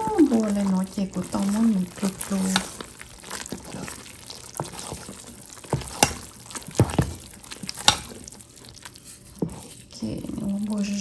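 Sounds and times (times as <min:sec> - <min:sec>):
batter squelching and popping: 0:00.0 - 0:11.0.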